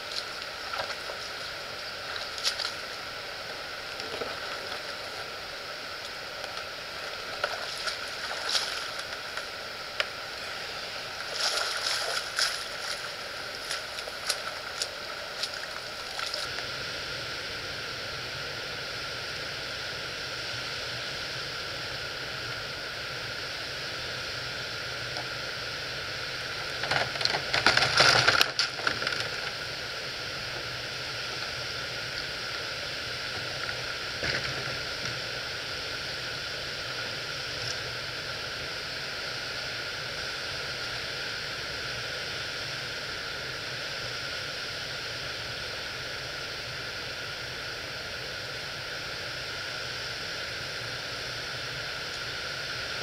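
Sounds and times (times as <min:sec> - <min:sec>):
water spilling over a dam: 0:00.0 - 0:17.6.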